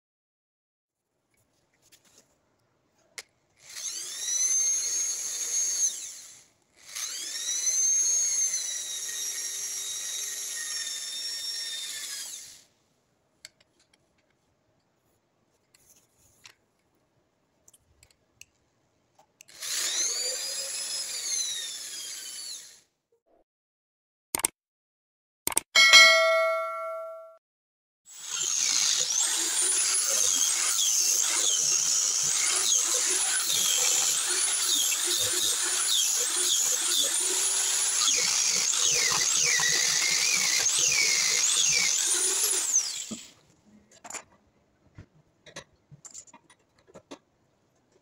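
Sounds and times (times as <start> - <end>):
electric drill whining: 3.6 - 12.7, 19.5 - 22.9, 28.1 - 43.3.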